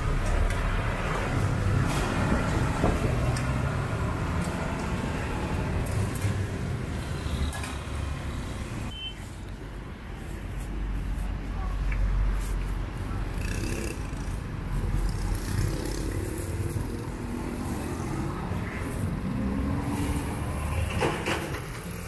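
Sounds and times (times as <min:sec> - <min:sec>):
street traffic rumble: 0:00.0 - 0:22.0
high beep: 0:08.9 - 0:09.2.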